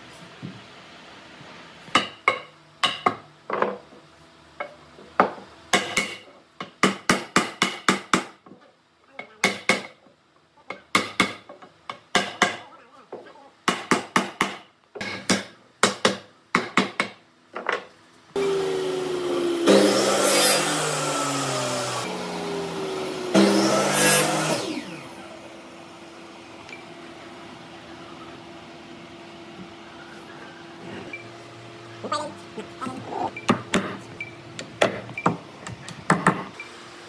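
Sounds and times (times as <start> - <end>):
power tool motor running: 18.4 - 27.2.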